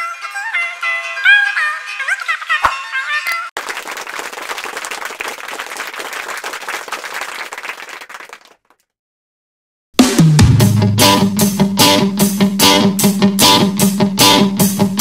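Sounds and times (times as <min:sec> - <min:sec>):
crowd applauding: 0:03.6 - 0:08.8.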